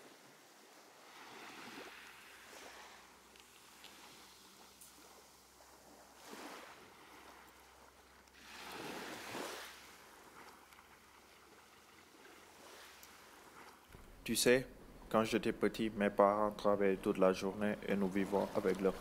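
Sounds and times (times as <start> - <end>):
sea waves washing in: 0.0 - 13.9, 16.9 - 19.0
low steady hiss: 13.8 - 19.0.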